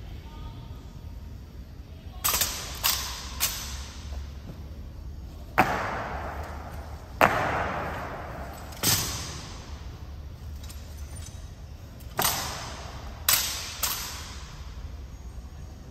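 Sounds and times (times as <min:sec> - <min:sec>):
rifles struck and slapped: 0:02.2 - 0:04.1, 0:05.6 - 0:09.8, 0:12.0 - 0:14.7
boots stamping: 0:05.5 - 0:08.7.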